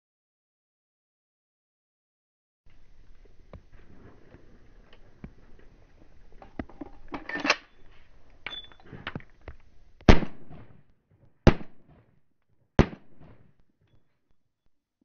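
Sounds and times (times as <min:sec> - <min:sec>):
gun handling clicks and rustles: 0:04.3 - 0:09.8
pistol shots with echo: 0:10.1 - 0:10.7, 0:11.4 - 0:11.9, 0:12.8 - 0:13.4.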